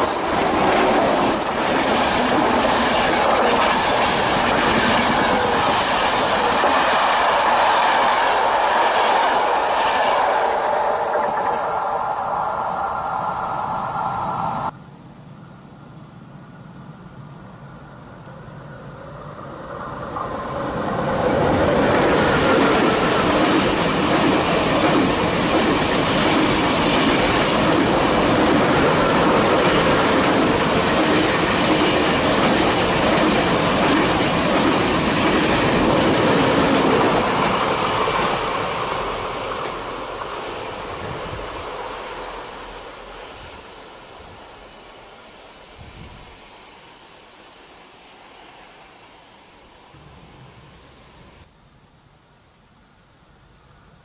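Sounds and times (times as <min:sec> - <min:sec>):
train wheels rumbling on rails: 0:00.0 - 0:14.7, 0:19.3 - 0:45.1.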